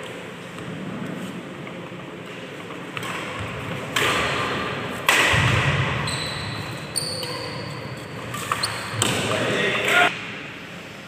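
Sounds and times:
racket hitting shuttlecock: 2.9s - 7.5s
shoes squeaking on wooden floor: 6.0s - 9.1s.

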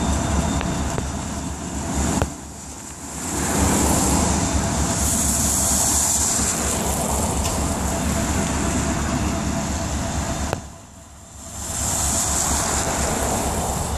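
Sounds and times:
diesel locomotive engine throb: 0.0s - 13.9s
hiss: 2.6s - 8.6s, 11.4s - 13.9s.

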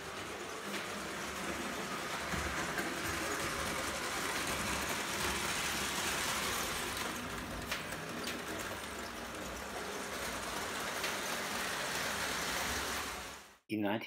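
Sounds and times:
toy train rumbling on track: 0.0s - 13.6s.

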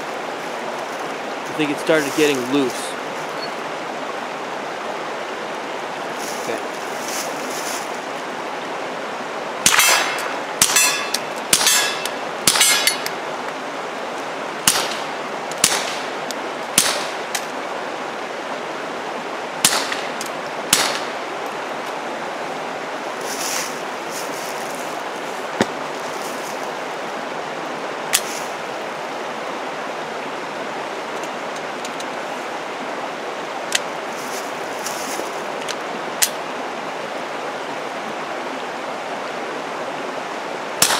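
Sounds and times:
suppressed pistol shots: 15.6s - 16.0s.

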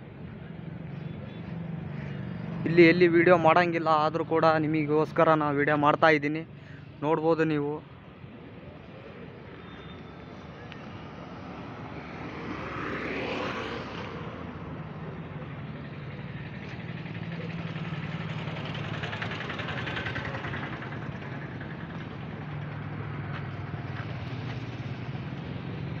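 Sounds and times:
outdoor street noise: 0.0s - 26.0s
vehicle engine running: 14.2s - 26.0s.

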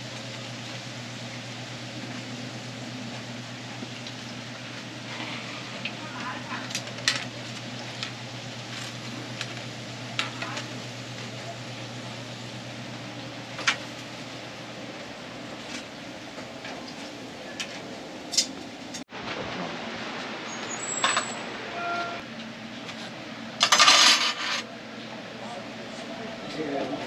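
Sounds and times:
oil sizzling on griddle: 0.0s - 19.0s.

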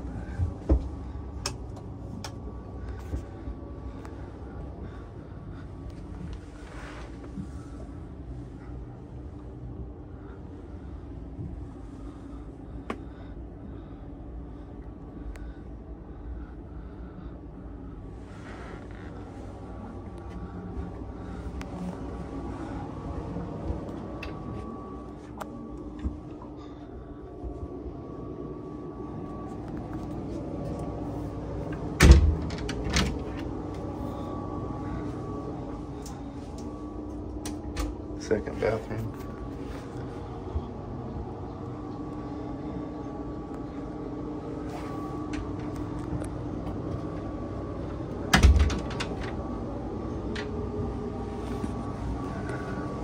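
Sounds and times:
low machinery hum: 0.0s - 53.0s.

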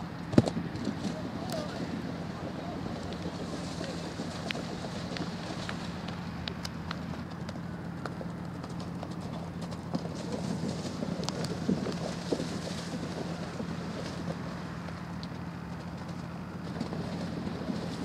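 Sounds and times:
outdoor hum: 0.0s - 18.0s
horse hoofbeats: 0.3s - 18.0s
water splashing: 0.6s - 6.4s, 10.2s - 14.9s.

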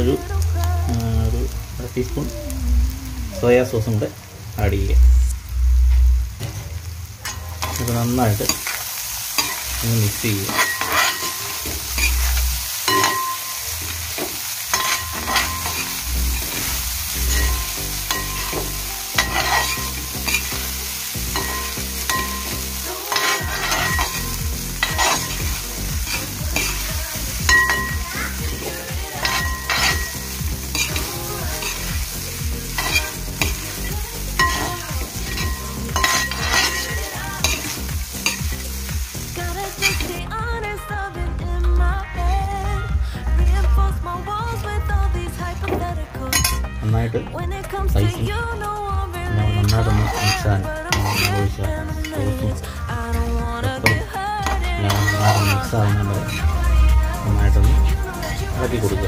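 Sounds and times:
rice sizzling: 0.0s - 47.0s, 49.2s - 59.0s
utensil scraping metal pot: 10.4s - 13.5s, 14.2s - 20.5s, 21.3s - 25.4s, 27.5s - 31.9s, 32.7s - 38.4s, 49.7s - 52.2s, 53.8s - 57.4s.

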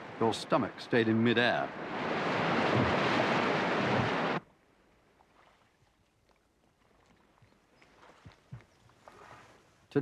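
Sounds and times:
rushing whitewater: 0.0s - 4.4s.

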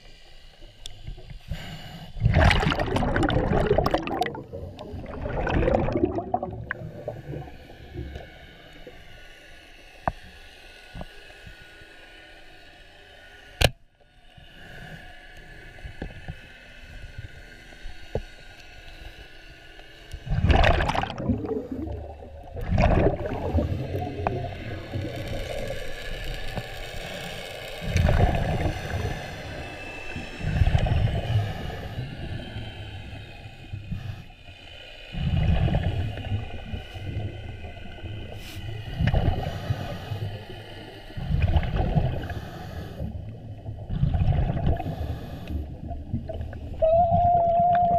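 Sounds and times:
underwater water rushing: 0.0s - 9.8s, 20.0s - 34.3s, 35.1s - 47.9s.

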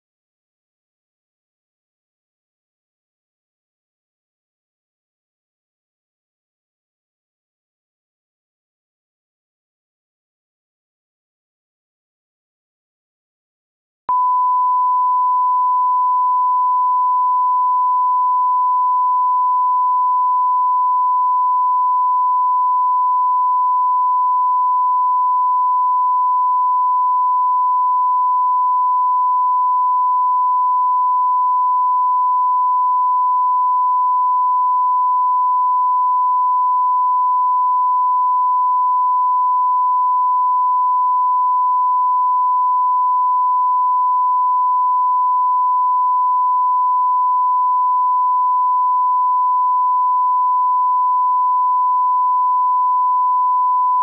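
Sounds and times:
steady sine test tone: 14.1s - 54.0s.

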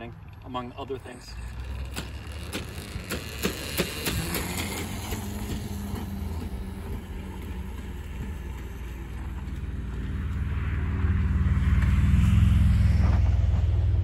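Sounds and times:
electric motor humming: 0.4s - 10.3s.

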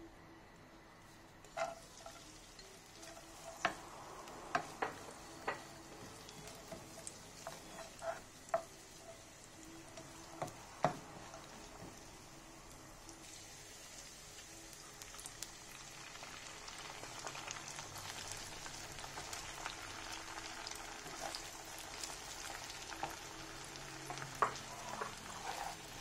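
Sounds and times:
wooden spatula scraping a pan: 1.4s - 2.3s, 4.5s - 9.2s, 24.4s - 26.0s
meat sizzling in oil: 1.5s - 26.0s.

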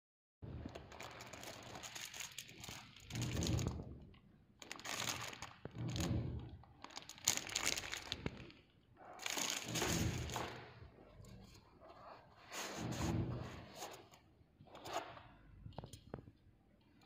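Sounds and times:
plastic bag crinkling: 0.6s - 10.8s.

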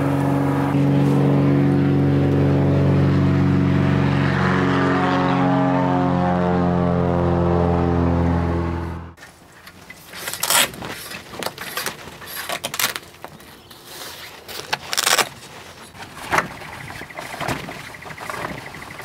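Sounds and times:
knocks and clatter: 16.0s - 19.0s.

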